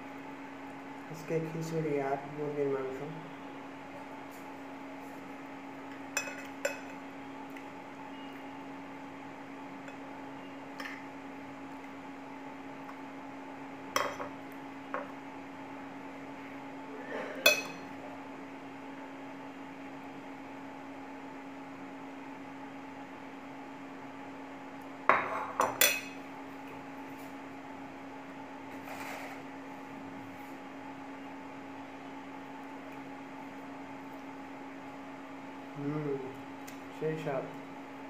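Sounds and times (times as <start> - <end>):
dishes and spoon clinking: 6.1 - 7.0, 17.4 - 17.9.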